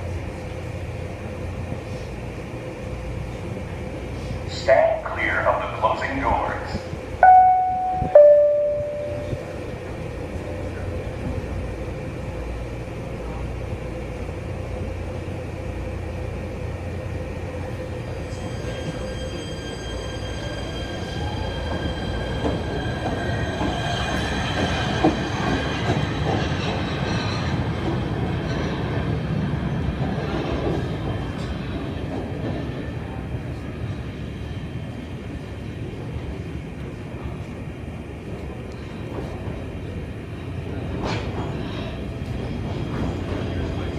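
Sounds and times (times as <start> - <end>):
rising high whine of train: 0.0 - 43.9
subway train rumbling: 0.0 - 43.9
door-closing chime: 7.2 - 9.4
train knocks: 7.2 - 9.7.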